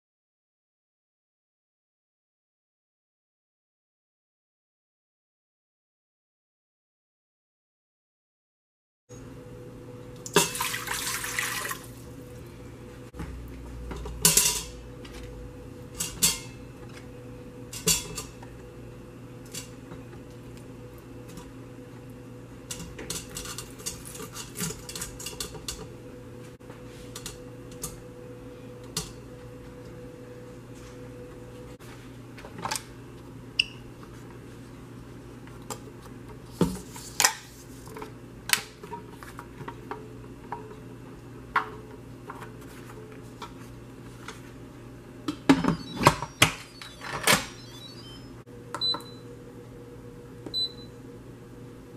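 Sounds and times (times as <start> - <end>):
water pouring into metal pot: 10.5 - 11.8.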